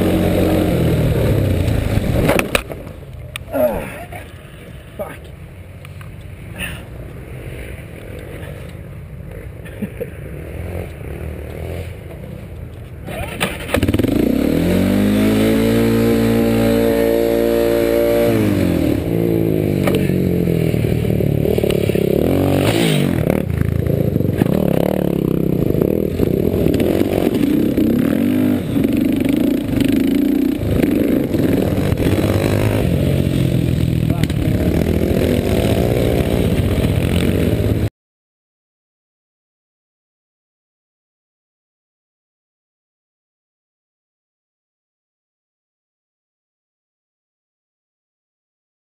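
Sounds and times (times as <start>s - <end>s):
quad bike engine revving: 0.0s - 2.6s, 7.9s - 12.2s, 13.0s - 37.9s.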